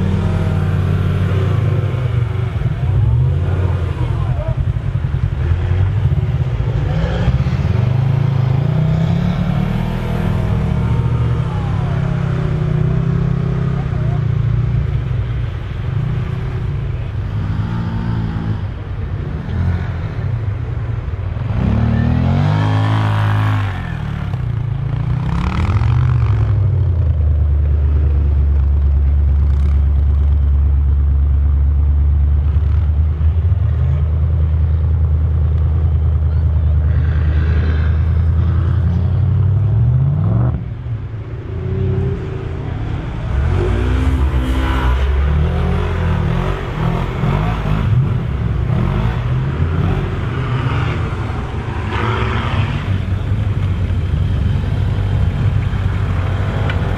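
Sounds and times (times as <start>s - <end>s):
engine revving: 0.0s - 14.3s, 21.4s - 26.8s, 36.6s - 56.9s.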